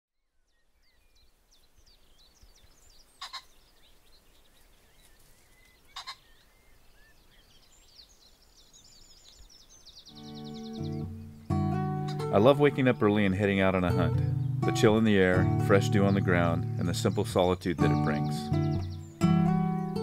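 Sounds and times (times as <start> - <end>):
small birds chirping: 0.2 - 20.0
pheasant crowing: 3.1 - 3.7, 5.1 - 6.5.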